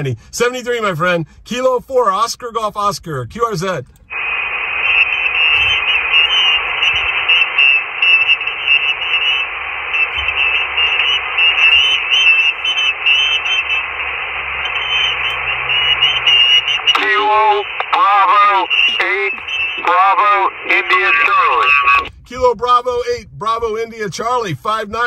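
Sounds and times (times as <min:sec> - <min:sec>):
radio receiver static hiss: 0:03.9 - 0:23.2.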